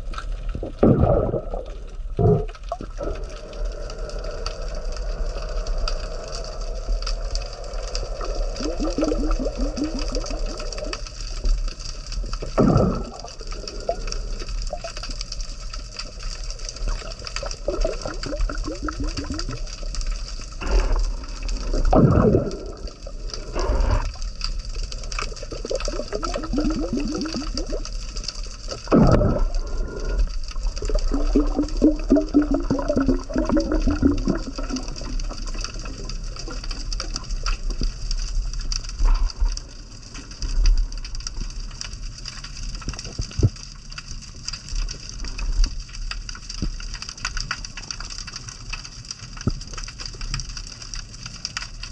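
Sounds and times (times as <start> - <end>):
whooshes of moving water: 0.0 - 11.7
fine crackle: 0.0 - 51.9
underwater water rushing: 0.0 - 51.9.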